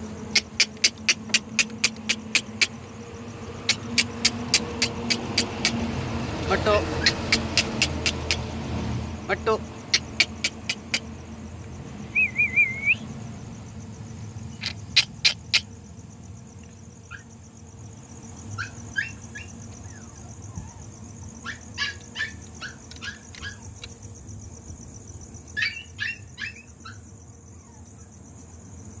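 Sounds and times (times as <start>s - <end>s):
puppy yipping: 7.0s - 8.4s, 21.4s - 23.9s, 25.6s - 27.0s.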